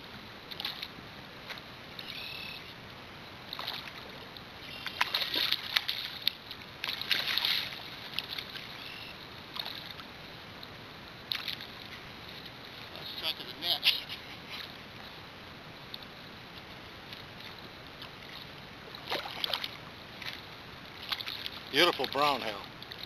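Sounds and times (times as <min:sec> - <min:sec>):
pond water sloshing and splashing: 0:00.1 - 0:23.0.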